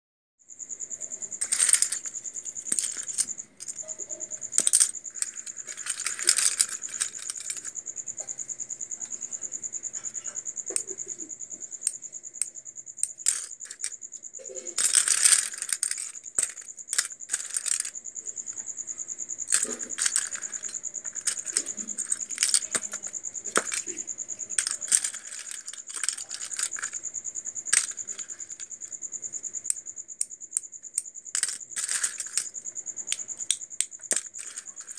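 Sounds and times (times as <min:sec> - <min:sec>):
plastic fittings clattering: 0:01.4 - 0:07.7, 0:13.1 - 0:17.9, 0:19.5 - 0:27.0, 0:27.7 - 0:28.6, 0:31.4 - 0:32.5, 0:34.1 - 0:34.9.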